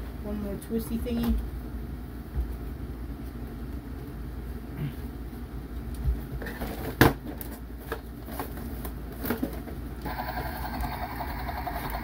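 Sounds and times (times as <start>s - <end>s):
steady mechanical hum: 0.0s - 12.0s
cardboard and plastic knocks and rustles: 6.0s - 9.8s.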